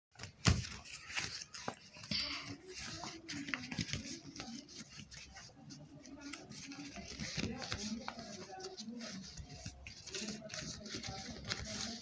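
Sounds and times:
paper rustling and crackling: 0:00.2 - 0:12.0.

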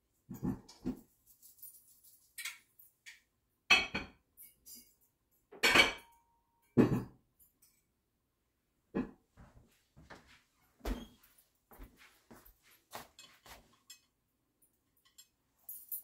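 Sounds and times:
dishes clinking and knocking: 0:02.4 - 0:07.8.

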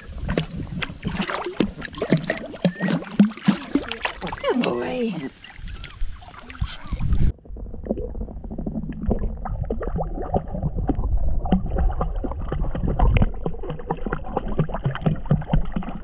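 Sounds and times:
puppy splashing in water: 0:00.0 - 0:07.2
low rumble: 0:05.7 - 0:16.0.

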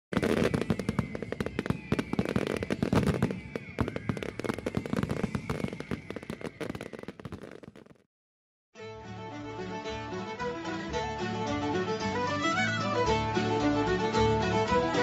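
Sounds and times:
fireworks bangs and crackling: 0:00.1 - 0:08.1.

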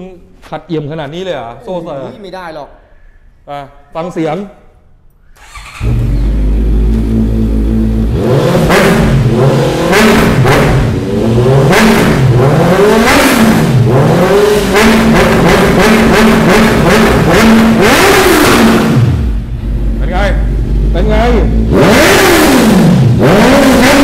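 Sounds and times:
motorcycle engine revving: 0:05.4 - 0:24.0.

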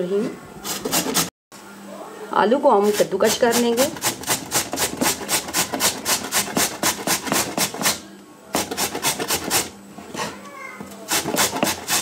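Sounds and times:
potato grated on metal grater: 0:00.6 - 0:01.3, 0:02.8 - 0:08.0, 0:08.6 - 0:10.3, 0:11.1 - 0:12.0.

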